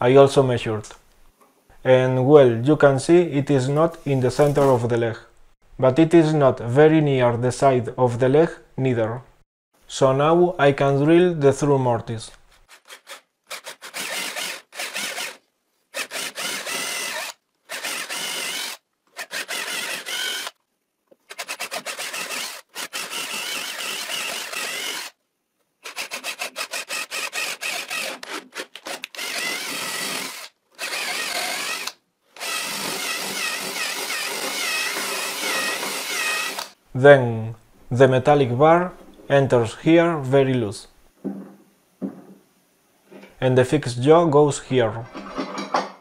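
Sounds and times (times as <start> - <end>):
cordless drill boring into wood: 12.9 - 20.6, 21.3 - 25.2, 25.8 - 36.8.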